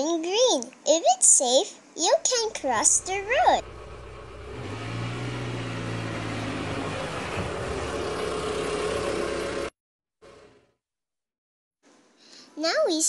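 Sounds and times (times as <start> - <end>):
low engine hum: 2.8 - 10.6
cars passing: 3.0 - 9.7.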